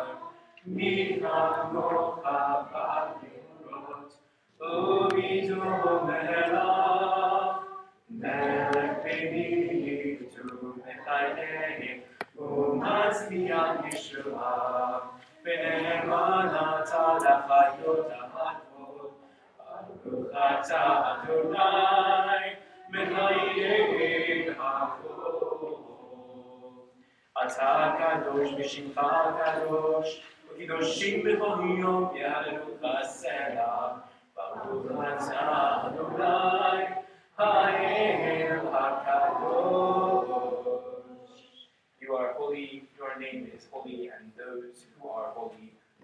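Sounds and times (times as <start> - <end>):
man leading prayer singing: 0.0 - 25.9, 27.4 - 41.0, 42.0 - 45.8
congregation singing: 0.0 - 44.0
man singing a prayer: 27.4 - 37.6.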